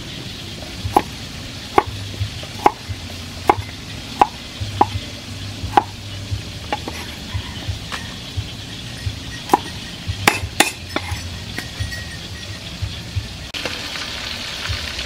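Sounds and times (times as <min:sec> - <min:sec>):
cleaver chopping on wooden block: 0:00.9 - 0:01.1, 0:02.6 - 0:02.8, 0:03.4 - 0:05.0, 0:05.7 - 0:06.0, 0:06.7 - 0:07.1, 0:09.5 - 0:11.2.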